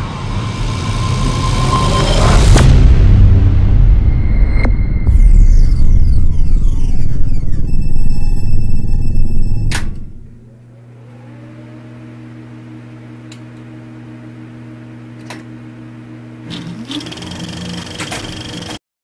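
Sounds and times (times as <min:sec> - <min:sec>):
short rising sweep: 0:00.0 - 0:10.5.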